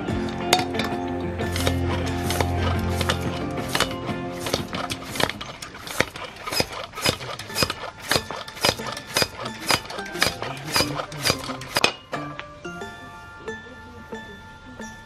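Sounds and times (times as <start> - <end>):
music with held tuned notes: 0.0 - 15.0
sharp evenly spaced strokes: 1.4 - 12.0.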